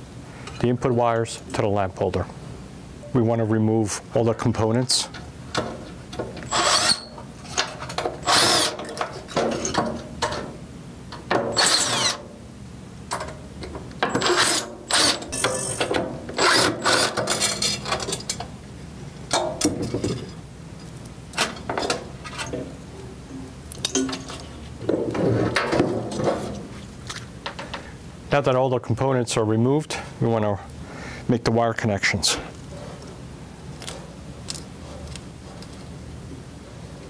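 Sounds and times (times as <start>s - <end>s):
cordless drill running in bursts: 8.2s - 8.8s.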